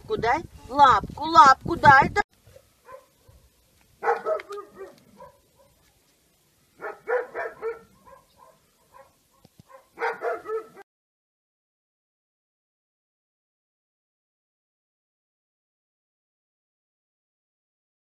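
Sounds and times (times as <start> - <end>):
puppy barking: 2.5 - 5.9, 6.8 - 10.9.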